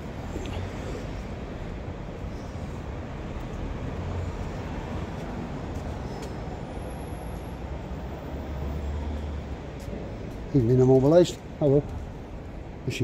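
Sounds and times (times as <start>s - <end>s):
busy road traffic rumble: 0.0s - 13.0s.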